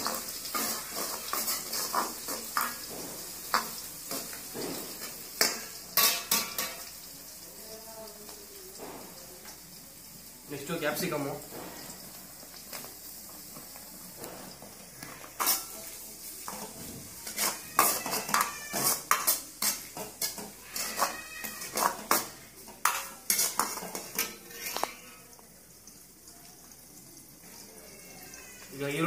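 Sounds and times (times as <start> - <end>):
ladle clanking against a wok: 0.0 - 7.0, 14.2 - 25.0
frying sizzle: 0.0 - 29.0.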